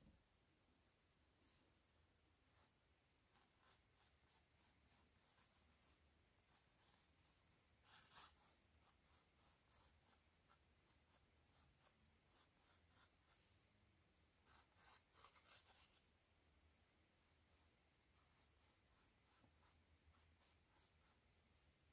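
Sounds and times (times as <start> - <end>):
pencil scratching on canvas: 2.4 - 13.5, 14.4 - 16.1, 17.5 - 21.3.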